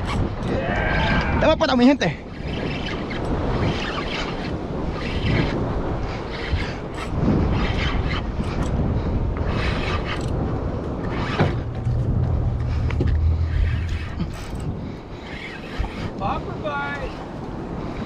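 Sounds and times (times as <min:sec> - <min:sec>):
water rushing and sloshing: 0:00.0 - 0:18.0
wind buffeting microphone: 0:00.0 - 0:18.0
boat engine humming: 0:08.8 - 0:16.5.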